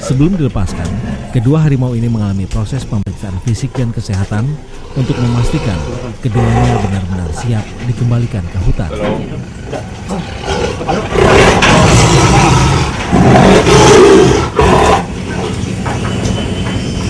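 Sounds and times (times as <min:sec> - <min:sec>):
tiger calling: 0:04.7 - 0:07.7, 0:09.4 - 0:15.6.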